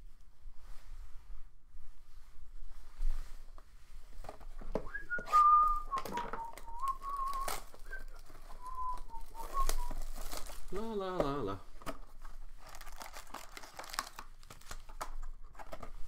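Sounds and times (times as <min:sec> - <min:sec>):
card packs clicking and rustling: 0:04.2 - 0:16.0
man whistling a tune: 0:04.8 - 0:10.0.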